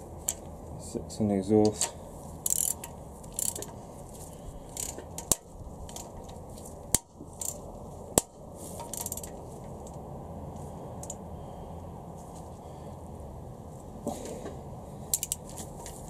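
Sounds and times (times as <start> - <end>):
torque wrench clicks: 1.8 - 3.7, 4.7 - 6.1, 8.2 - 9.3, 15.1 - 15.5
ratchet rasping: 2.4 - 3.8, 4.6 - 6.2, 6.9 - 7.6, 8.2 - 9.4, 15.1 - 16.0.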